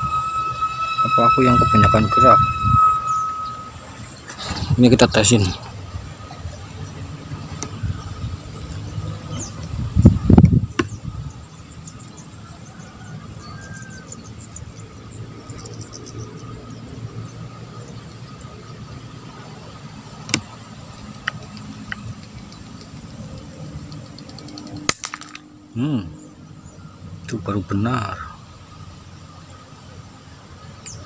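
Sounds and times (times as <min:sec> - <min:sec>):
low rumble: 0:00.0 - 0:13.4
rapid high insect chirping: 0:00.0 - 0:31.0.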